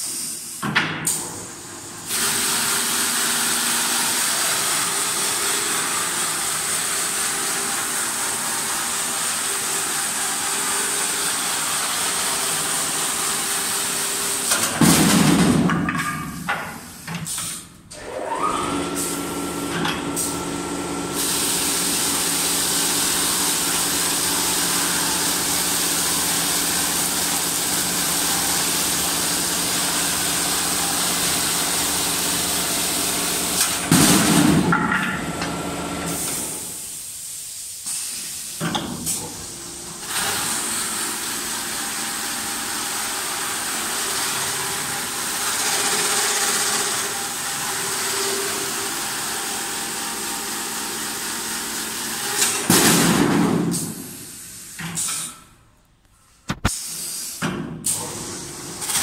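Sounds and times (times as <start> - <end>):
sanding machine whirring: 18.0 - 33.9.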